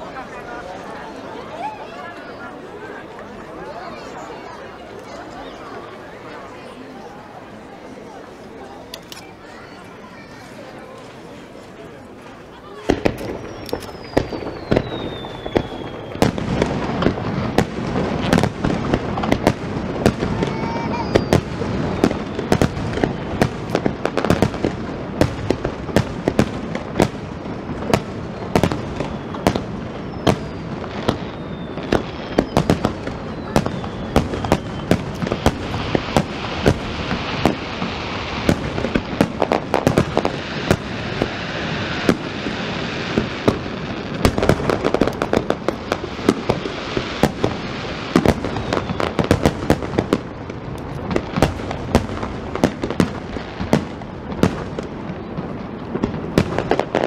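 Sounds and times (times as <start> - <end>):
firework bursts and bangs: 0.0 - 57.0
firework crackling: 0.0 - 57.0
falling firework whistles: 12.8 - 18.6, 19.2 - 23.9, 27.9 - 43.6, 46.2 - 49.8.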